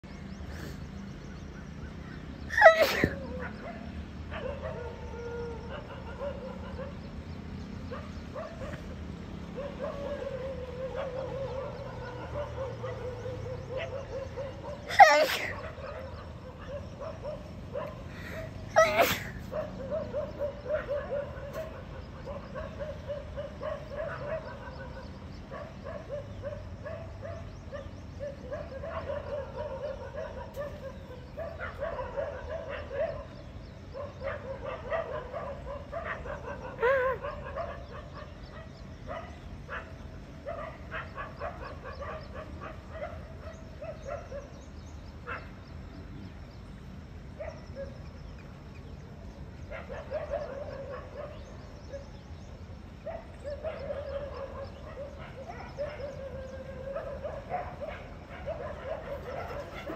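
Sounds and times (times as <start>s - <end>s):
animal yelping and whining: 2.5s - 3.6s, 14.9s - 16.1s, 18.3s - 19.6s, 36.8s - 37.4s
sharp animal calls: 9.7s - 17.3s.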